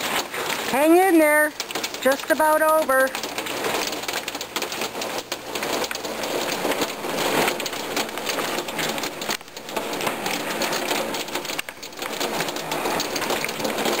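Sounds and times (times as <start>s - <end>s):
rain and hail pattering on wood: 0.0s - 14.0s.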